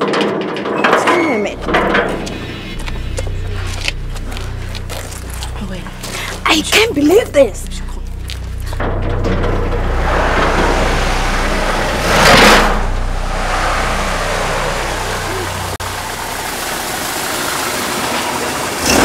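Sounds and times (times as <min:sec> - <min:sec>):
car engine humming: 0:01.3 - 0:19.0
rush of noise: 0:08.8 - 0:19.0.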